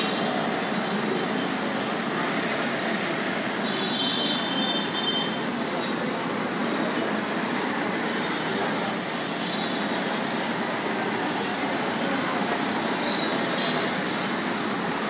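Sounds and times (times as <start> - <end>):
city street traffic: 0.0 - 15.0.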